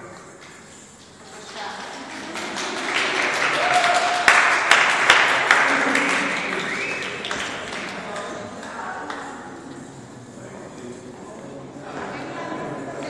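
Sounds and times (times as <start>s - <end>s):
audience applauding: 1.0s - 9.2s.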